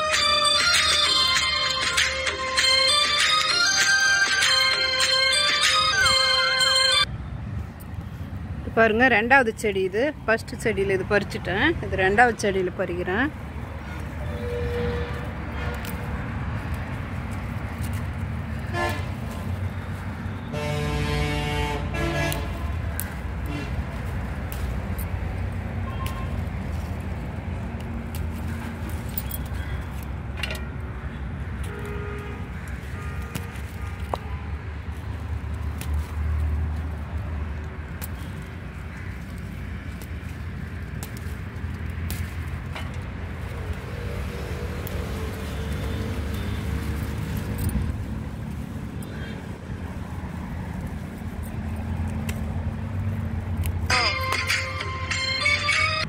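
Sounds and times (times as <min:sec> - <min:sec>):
electronic melody: 0:00.0 - 0:07.1, 0:53.9 - 0:56.0
vehicle engine rumbling: 0:00.0 - 0:56.0
rustling leaves and pods: 0:07.3 - 0:54.5
bangles clinking: 0:28.4 - 0:30.7.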